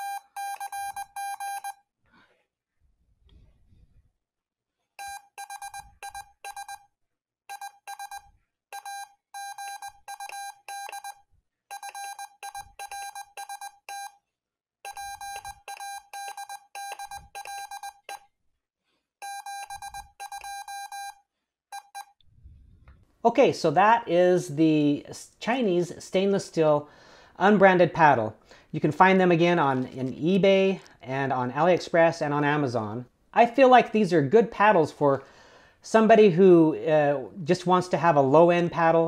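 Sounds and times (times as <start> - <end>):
morse code tone: 0.0 - 1.8, 5.0 - 6.8, 7.5 - 14.2, 14.9 - 18.2, 19.2 - 22.2.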